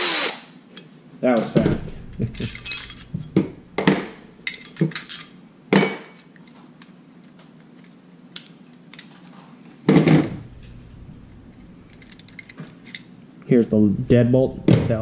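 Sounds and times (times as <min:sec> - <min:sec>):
metal lock parts clinking: 0:02.0 - 0:03.4, 0:04.1 - 0:05.4, 0:11.5 - 0:13.1.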